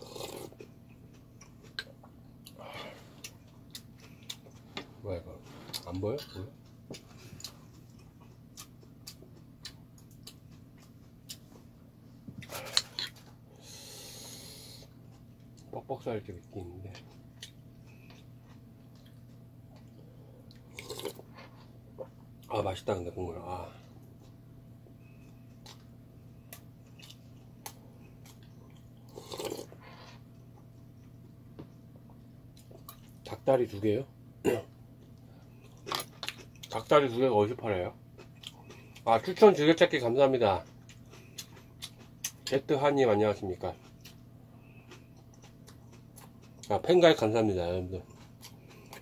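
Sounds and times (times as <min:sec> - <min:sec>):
low steady hum: 0:00.0 - 0:49.0
chewing: 0:00.1 - 0:04.9, 0:05.7 - 0:11.6, 0:16.9 - 0:22.2, 0:25.0 - 0:31.2, 0:35.0 - 0:36.9, 0:38.2 - 0:39.4, 0:40.6 - 0:42.6, 0:43.6 - 0:46.8, 0:48.0 - 0:49.0
slurping broth: 0:29.1 - 0:30.2.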